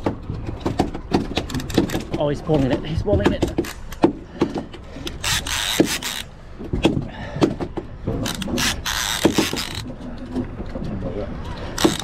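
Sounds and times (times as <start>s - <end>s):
fishing reel ratcheting: 5.1s - 6.3s, 8.2s - 9.9s, 11.7s - 12.0s
fishing reel buzzing run: 5.2s - 6.3s, 8.2s - 9.8s, 11.8s - 12.0s.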